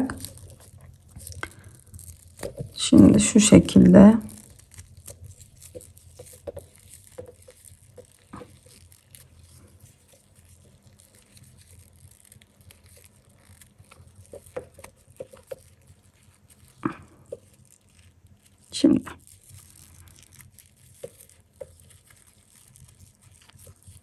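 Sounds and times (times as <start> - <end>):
paper yarn crinkling: 0.0 - 24.0
small ticks: 0.2 - 2.8.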